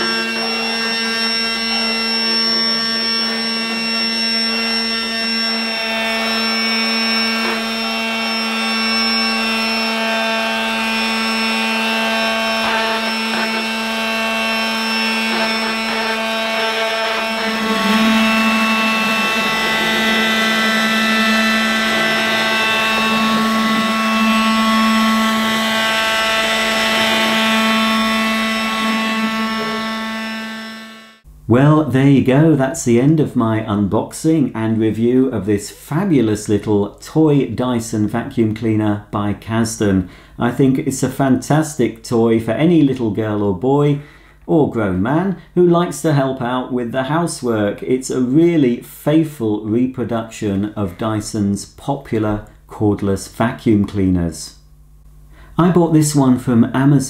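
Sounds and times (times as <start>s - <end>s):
toy vacuum motor whining: 0.0s - 31.2s.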